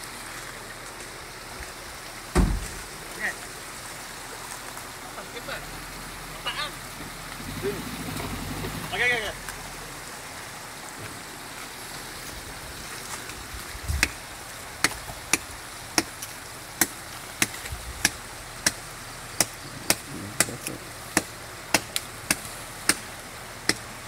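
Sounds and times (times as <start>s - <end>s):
blade chopping through brush: 16.8s - 18.8s, 19.4s - 23.1s.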